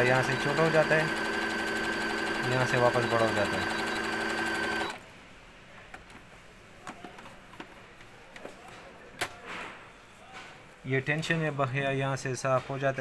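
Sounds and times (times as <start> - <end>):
sewing machine stitching: 0.0 - 5.0.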